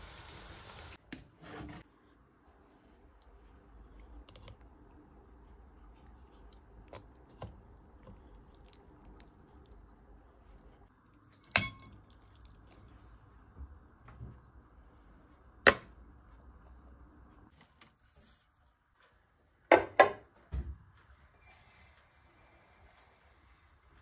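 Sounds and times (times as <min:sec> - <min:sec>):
wet curds squishing: 0:02.9 - 0:10.8.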